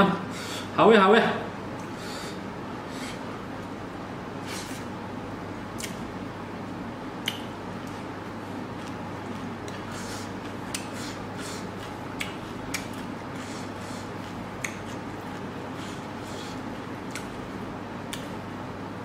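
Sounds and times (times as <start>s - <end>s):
sharp clicks and smacks: 5.8s - 6.0s, 7.2s - 8.0s, 11.8s - 13.1s, 17.1s - 17.4s
fingers mixing food on plate: 8.7s - 17.4s.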